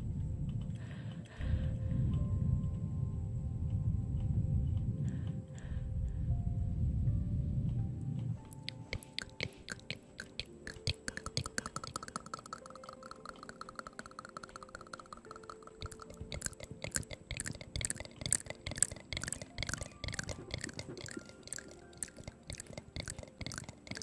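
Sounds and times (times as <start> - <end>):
lip and tongue clicks: 8.4 - 24.0.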